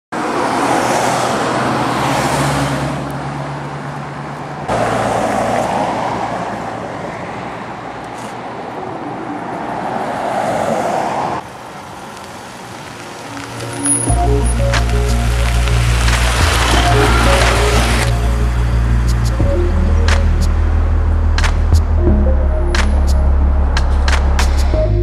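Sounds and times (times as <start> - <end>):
vehicles passing: 0.1 - 25.0.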